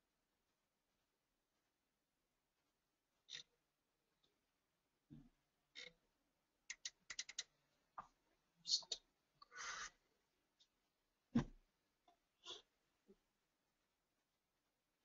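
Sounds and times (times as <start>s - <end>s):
mouse clicking: 6.7s - 7.5s
dull thump: 11.3s - 11.6s.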